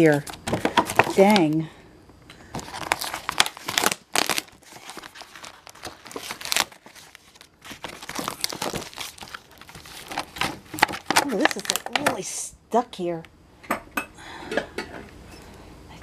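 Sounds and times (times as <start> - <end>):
packing tape ripping off cardboard: 2.5 - 12.0.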